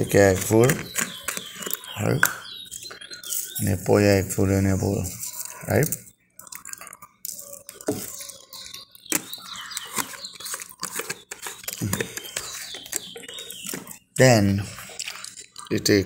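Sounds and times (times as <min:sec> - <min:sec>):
plastic clicks and rustles: 0:00.4 - 0:03.6, 0:05.3 - 0:14.0.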